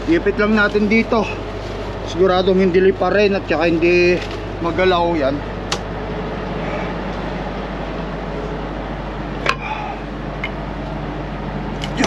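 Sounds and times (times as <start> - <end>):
diesel truck engine idling: 0.0 - 12.0
sharp click: 5.7 - 5.9.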